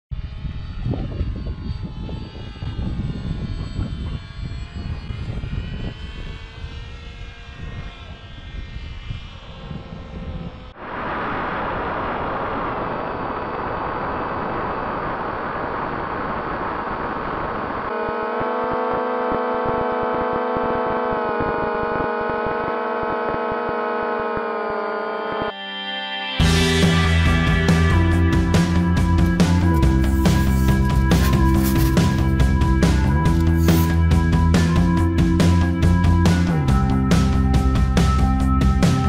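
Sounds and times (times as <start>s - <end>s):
gusty wind noise: 0.1s - 17.9s
electric motors and propellers whining: 0.1s - 25.7s, 26.4s - 39.0s.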